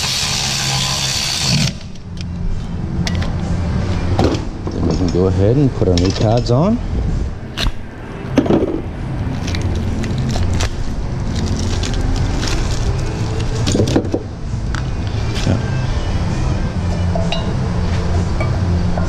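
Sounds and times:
steady low hum: 0.0 - 19.0
metal tools clinking in drawer: 4.7 - 6.6.

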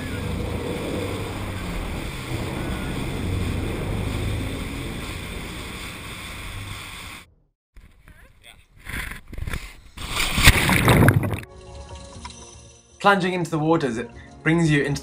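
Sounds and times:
waves: 0.0 - 7.3
boat engine rumble: 0.0 - 7.6
wind: 0.0 - 12.4.

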